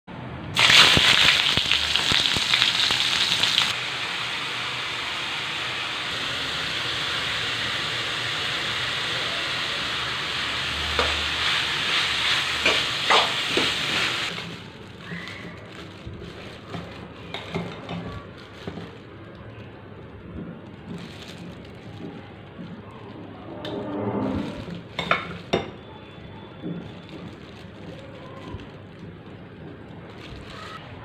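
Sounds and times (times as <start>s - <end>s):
food sizzling in a wok: 0.6s - 15.8s.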